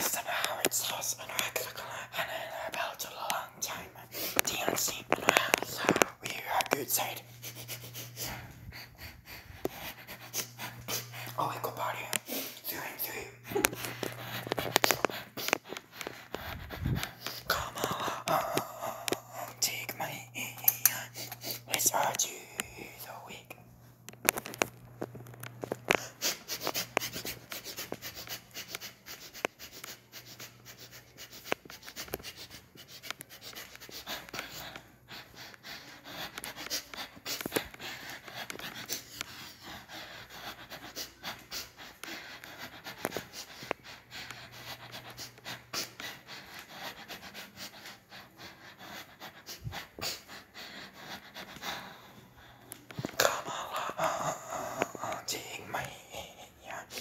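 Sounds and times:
person breathing heavily: 0.0 - 23.5, 31.0 - 57.0.

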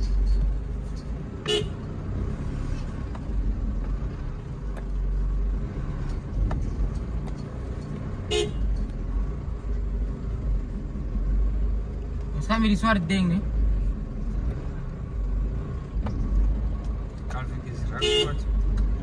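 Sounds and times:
engine rumbling: 0.0 - 19.0
truck horn tooting: 1.4 - 1.9, 8.3 - 8.7, 17.9 - 18.5.

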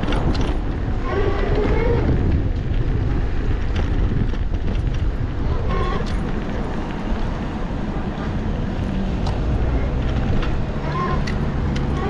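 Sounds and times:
small tyres rumbling over paving: 0.0 - 12.0
wind buffeting microphone: 0.0 - 12.0.

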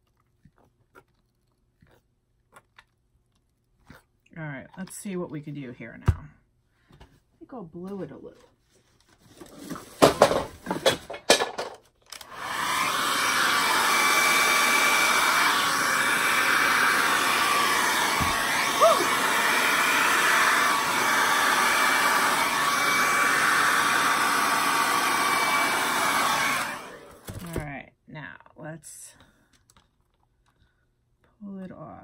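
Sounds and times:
hair dryer running: 12.1 - 27.6.

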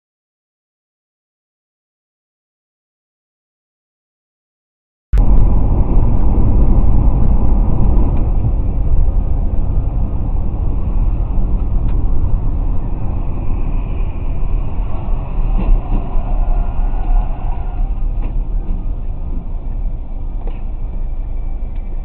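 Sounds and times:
car road rumble from inside: 5.2 - 22.0.

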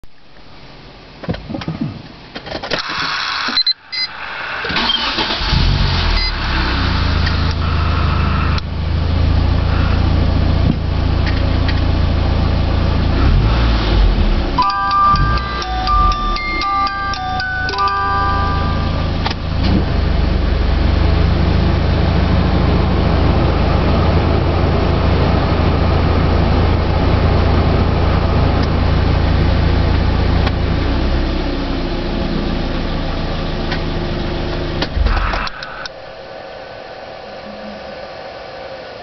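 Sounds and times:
car engine idling: 4.3 - 38.8
engine switching off clatter: 33.6 - 36.0.

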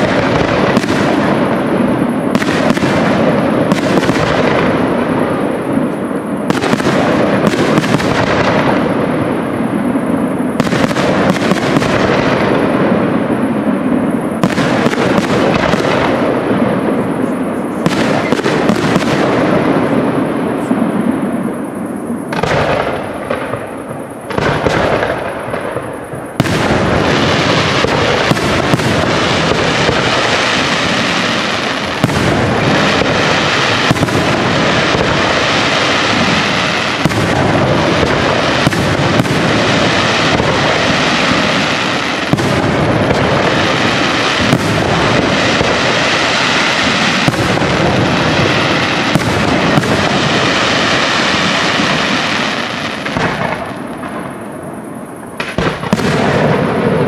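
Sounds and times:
fireworks launching and bursting: 0.0 - 57.0.

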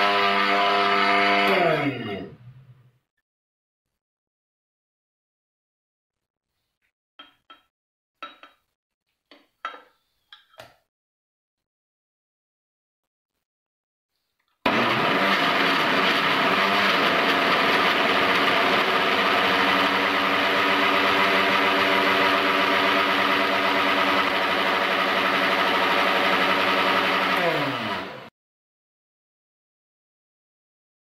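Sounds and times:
blender motor whirring: 0.0 - 2.3, 14.7 - 28.3
blender motor winding down: 0.0 - 2.4, 14.7 - 28.3.

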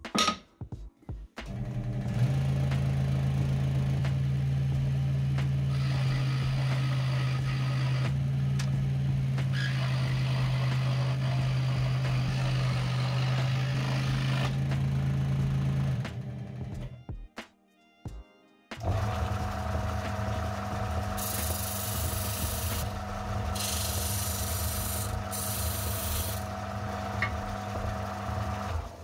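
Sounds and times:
saw blade cutting wood: 5.7 - 8.2, 9.4 - 14.9, 21.0 - 26.5
scroll saw motor humming: 5.7 - 8.2, 9.5 - 14.6, 18.8 - 29.0.

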